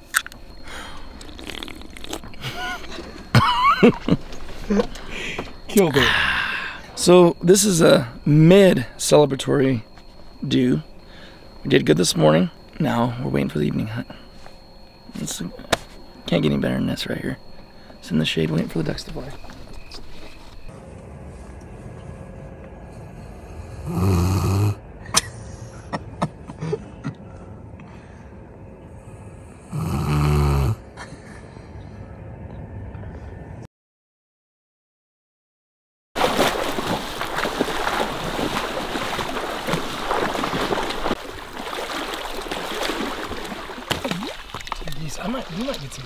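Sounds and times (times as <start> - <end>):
water splashing and sloshing: 0.1 - 5.8, 17.0 - 20.7, 36.2 - 46.0
dog snoring: 23.8 - 24.8, 29.6 - 30.8.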